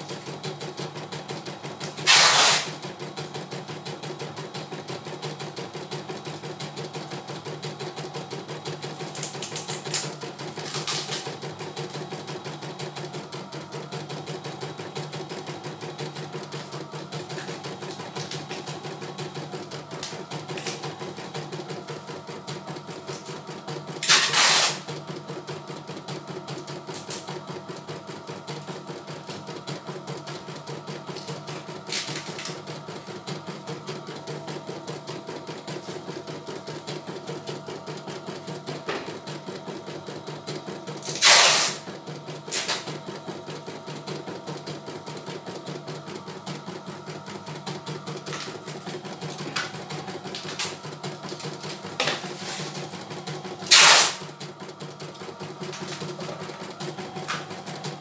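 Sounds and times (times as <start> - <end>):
embroidery machine stitching: 0.0 - 58.0
motor humming: 40.4 - 58.0.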